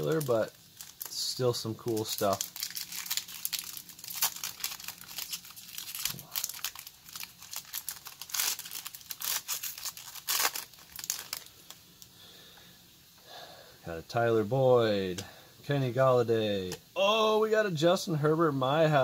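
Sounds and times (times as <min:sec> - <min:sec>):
foil wrapper crinkling and tearing: 0:00.0 - 0:12.1.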